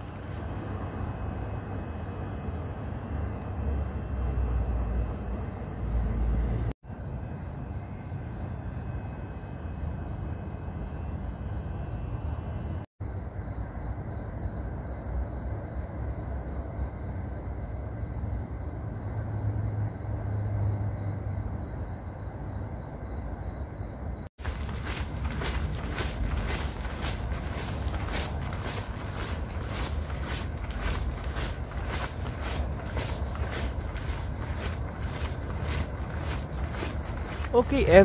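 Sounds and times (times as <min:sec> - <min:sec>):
crickets chirping: 0:00.0 - 0:38.0
low outdoor rumble: 0:24.4 - 0:38.0.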